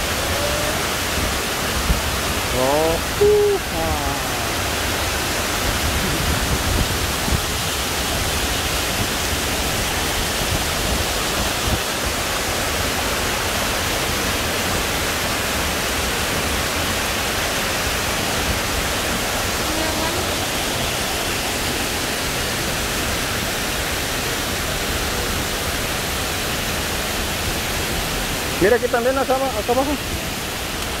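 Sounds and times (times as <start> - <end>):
waterfall rushing over rocks: 0.0 - 31.0.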